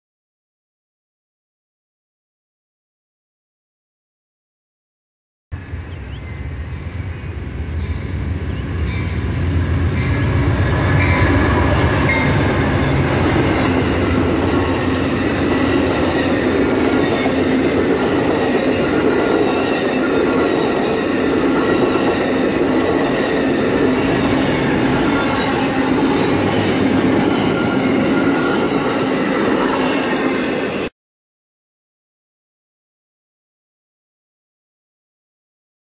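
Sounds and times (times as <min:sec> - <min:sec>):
diesel locomotives rumbling: 0:05.6 - 0:30.9
train wheels rushing on rails: 0:05.7 - 0:30.9.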